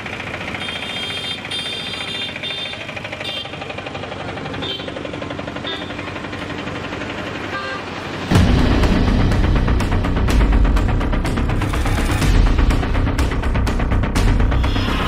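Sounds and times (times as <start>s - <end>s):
auto-rickshaw engine idling: 0.0s - 11.6s.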